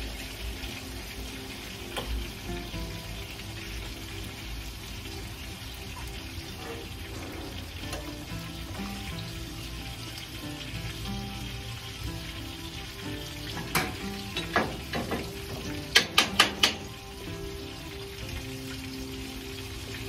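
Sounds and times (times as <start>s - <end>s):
chicken sizzling in a skillet: 0.0s - 20.0s
sharp knocks: 13.6s - 16.9s.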